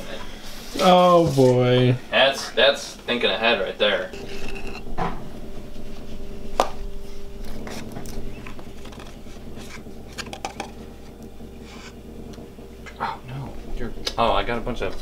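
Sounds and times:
baking containers clicking and rustling: 7.8s - 10.9s.

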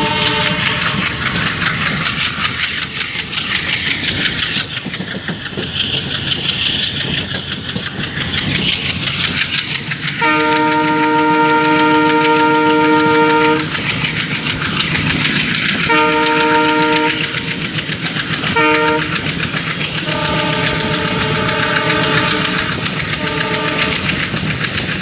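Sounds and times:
locomotive horn blast: 0.0s - 1.0s, 10.2s - 13.7s, 15.9s - 17.4s, 18.6s - 19.1s, 20.0s - 24.1s
train wheels rumbling on rails: 0.0s - 25.0s.

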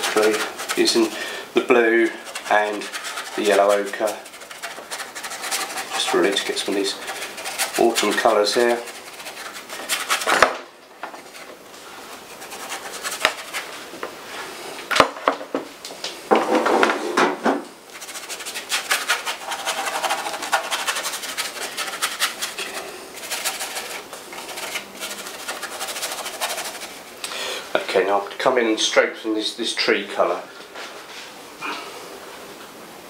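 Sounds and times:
paintbrush scrubbing canvas: 0.0s - 10.4s, 11.1s - 14.5s, 17.9s - 27.2s.

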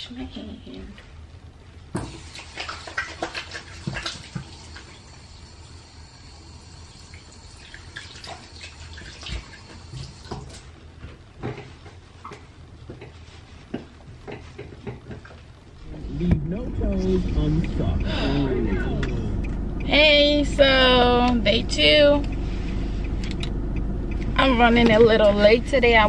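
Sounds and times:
water running from a tap: 2.0s - 10.6s.

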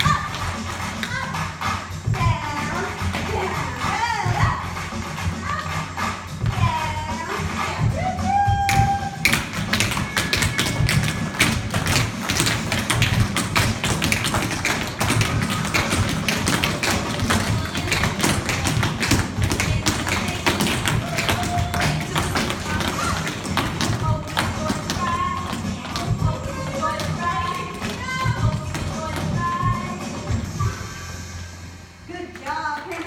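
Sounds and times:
music playing: 0.0s - 33.0s
children's shoes tapping on wooden floor: 8.6s - 29.9s.

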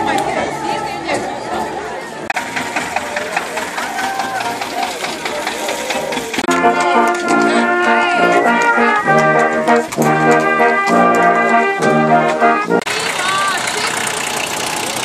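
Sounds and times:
brass choir playing held chords: 6.5s - 12.9s.

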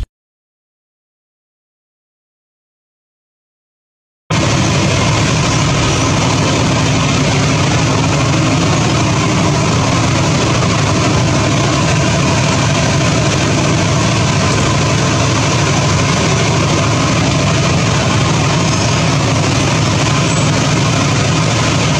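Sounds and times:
diesel train engine idling: 4.3s - 21.9s.

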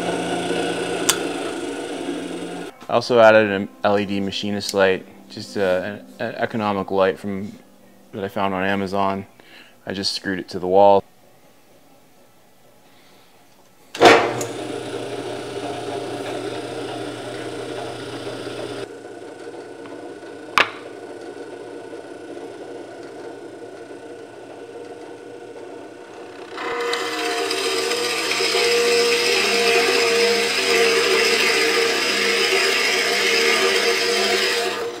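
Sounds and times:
drill press motor humming: 0.0s - 2.7s, 14.0s - 35.0s
drill press switch click: 1.0s - 1.3s.

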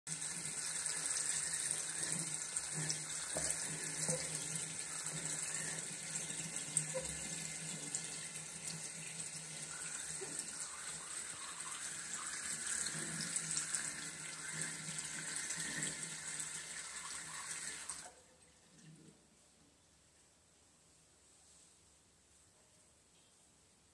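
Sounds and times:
tap water running into sink: 0.1s - 18.2s.

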